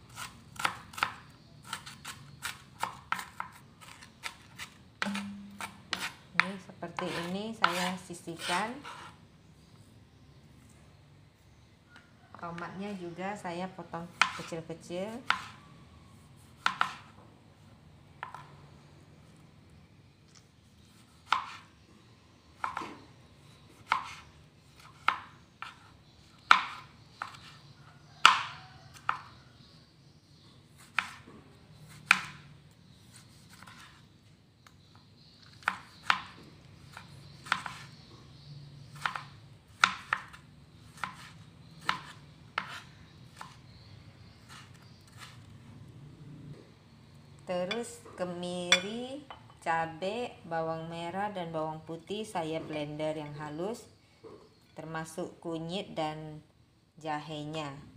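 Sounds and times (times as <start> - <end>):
knife chopping on plastic board: 0.2 - 7.8, 14.1 - 14.5, 15.2 - 15.6, 16.6 - 17.1, 21.0 - 21.6, 22.6 - 23.0, 23.8 - 25.9, 26.5 - 27.5, 28.2 - 29.3, 30.8 - 31.3, 31.9 - 32.4, 35.5 - 37.9, 39.0 - 43.6.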